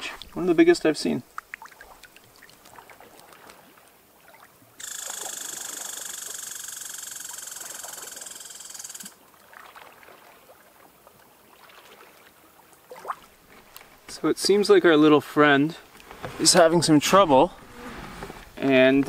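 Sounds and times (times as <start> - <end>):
water ripples lapping on pebbles: 0.0 - 6.4, 7.3 - 14.2
cicada buzzing: 4.8 - 9.2.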